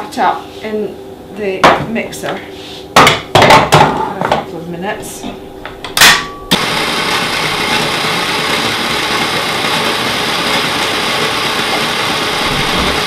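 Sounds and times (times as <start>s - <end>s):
stand mixer running: 6.5s - 13.0s.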